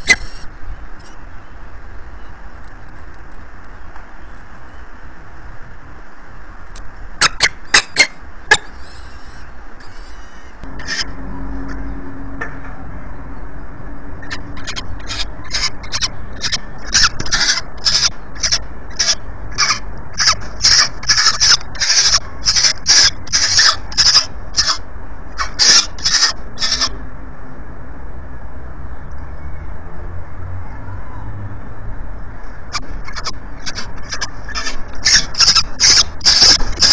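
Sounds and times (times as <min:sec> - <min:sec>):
steady low rumble: 0:00.0 - 0:36.9
falcon harsh rasping calls: 0:07.2 - 0:11.1, 0:14.2 - 0:24.8, 0:25.4 - 0:26.9, 0:32.7 - 0:36.9.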